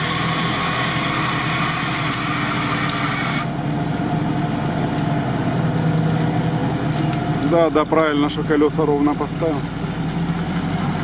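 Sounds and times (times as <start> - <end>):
winch hissing whine: 0.0 - 8.5
engine hum: 0.0 - 11.0.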